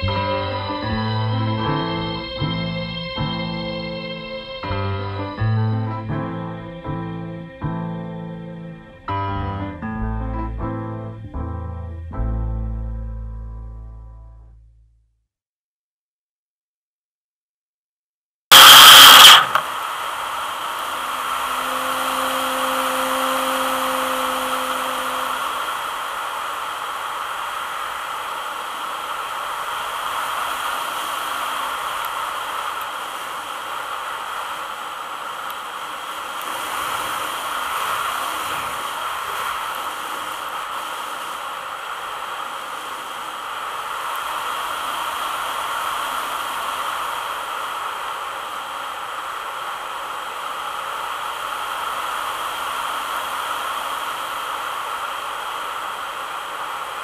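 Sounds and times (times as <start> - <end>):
rushing airflow: 18.5 - 57.0.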